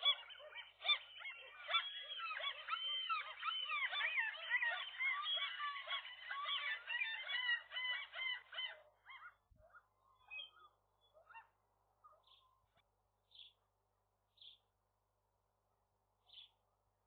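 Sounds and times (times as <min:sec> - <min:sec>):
gulls calling: 0:00.0 - 0:11.5
small bird chirping: 0:00.0 - 0:13.6, 0:14.4 - 0:14.6, 0:16.3 - 0:16.6.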